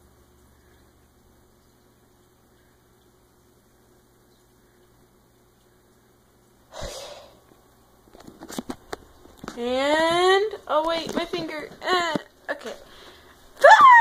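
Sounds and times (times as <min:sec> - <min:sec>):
low steady hum: 0:00.0 - 0:14.0
person sneezing: 0:06.7 - 0:07.4.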